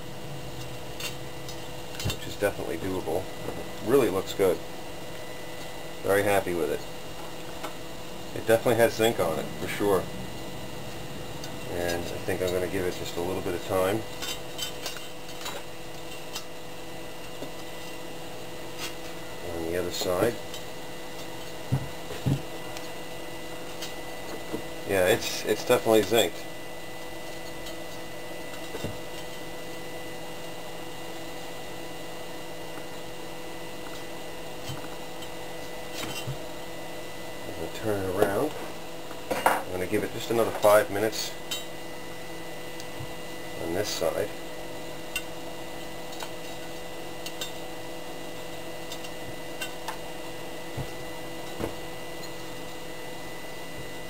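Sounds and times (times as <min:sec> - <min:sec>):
electrical hum: 0:00.0 - 0:54.0
faint high whine: 0:00.0 - 0:54.0.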